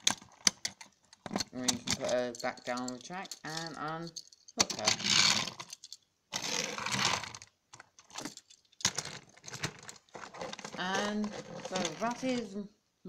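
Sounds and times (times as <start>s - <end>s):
plastic toy pieces rattling and scraping: 0.0s - 12.6s.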